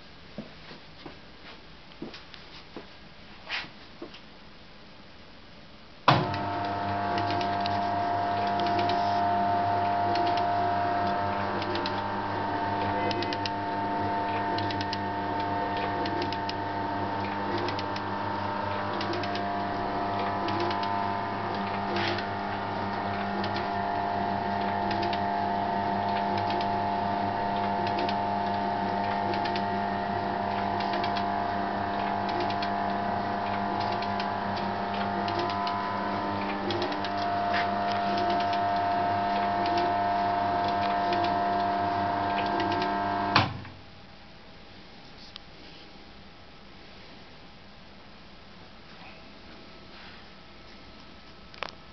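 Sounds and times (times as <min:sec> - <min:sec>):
metal shaper motor humming: 0:06.2 - 0:43.5.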